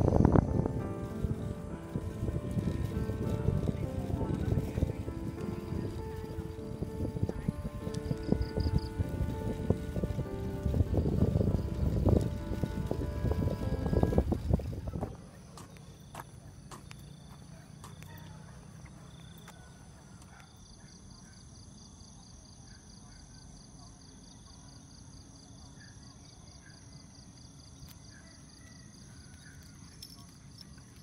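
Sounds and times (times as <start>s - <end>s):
low rumble: 0.0s - 15.4s
insects trilling: 0.0s - 31.0s.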